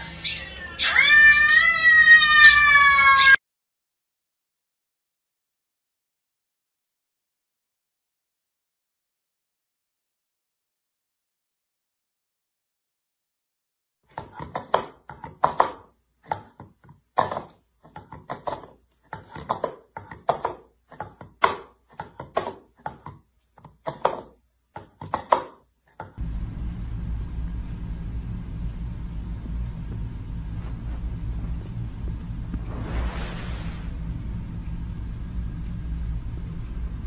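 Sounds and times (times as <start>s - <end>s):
steady low rumbling: 26.2s - 37.0s.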